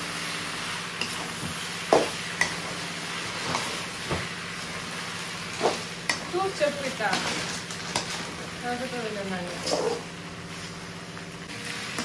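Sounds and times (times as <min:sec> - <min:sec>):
food sizzling in a pan: 0:00.0 - 0:12.0
metal spatula scraping a pan: 0:09.4 - 0:10.7.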